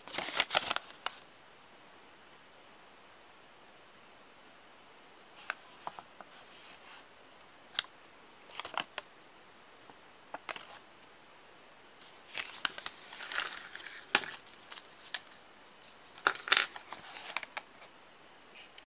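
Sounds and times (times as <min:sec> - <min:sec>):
paper rustling: 0:00.0 - 0:01.2, 0:05.4 - 0:07.0, 0:08.4 - 0:09.0, 0:10.4 - 0:10.8, 0:12.0 - 0:17.9.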